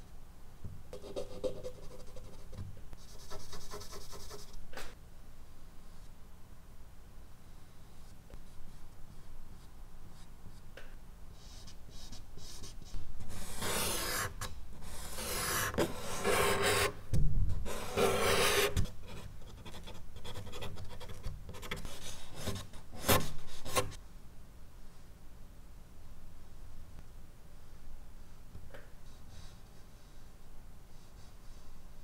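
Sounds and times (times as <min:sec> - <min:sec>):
charcoal scraping on paper: 0:13.3 - 0:16.9, 0:17.7 - 0:18.8.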